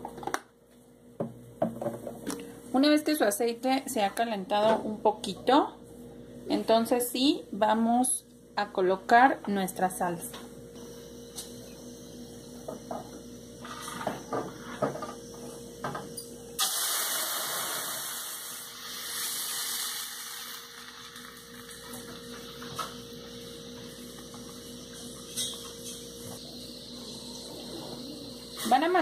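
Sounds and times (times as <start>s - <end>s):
salsa sizzling in hot oil: 16.6s - 24.9s.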